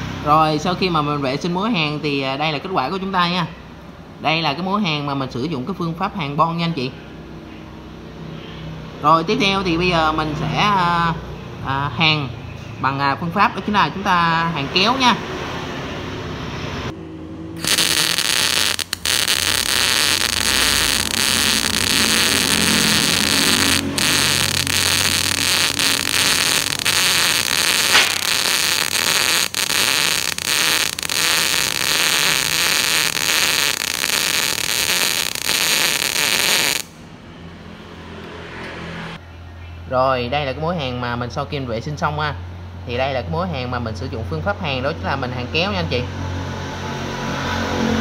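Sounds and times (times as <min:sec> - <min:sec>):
welding arc sizzling: 0:17.6 - 0:37.0.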